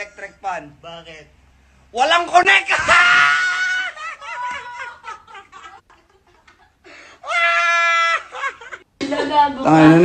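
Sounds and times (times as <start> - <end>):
young men laughing: 2.8 - 9.6.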